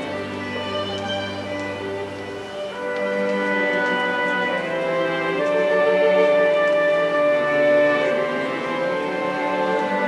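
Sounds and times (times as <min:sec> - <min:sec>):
instrumental processional music: 0:00.0 - 0:10.0.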